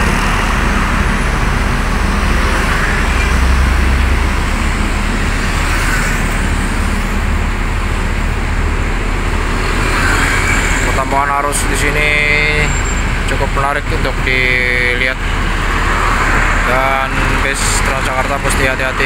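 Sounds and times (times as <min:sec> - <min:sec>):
lorry rumbling past: 0:00.0 - 0:19.0
road traffic passing: 0:00.0 - 0:19.0.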